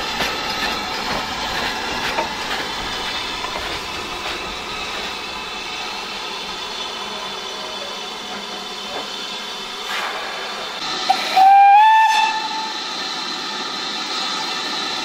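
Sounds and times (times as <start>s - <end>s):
steam hissing: 0.0s - 15.0s
steam locomotive whistle: 11.1s - 12.8s.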